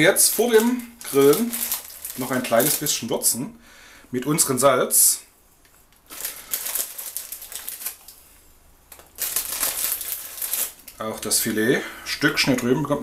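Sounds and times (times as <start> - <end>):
salt crackling and rustling: 0.0 - 3.1, 5.9 - 11.6.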